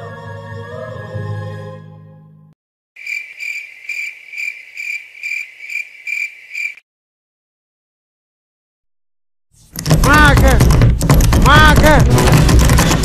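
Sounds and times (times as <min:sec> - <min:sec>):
cricket chirping: 0:03.0 - 0:06.8.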